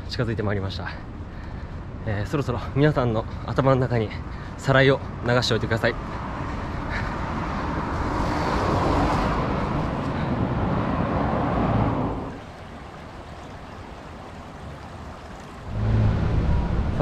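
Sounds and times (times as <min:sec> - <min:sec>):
water flowing in a canal: 0:00.0 - 0:17.0
road traffic going by: 0:00.8 - 0:17.0.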